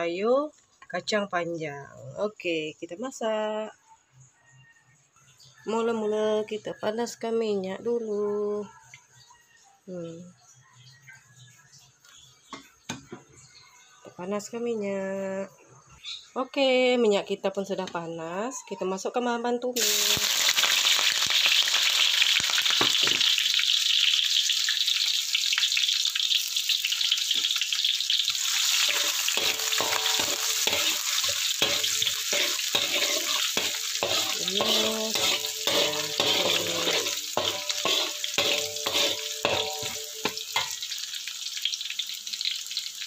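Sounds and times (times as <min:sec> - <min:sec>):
food sizzling in hot oil: 0:19.8 - 0:43.0
spatula scraping a wok: 0:28.3 - 0:40.9.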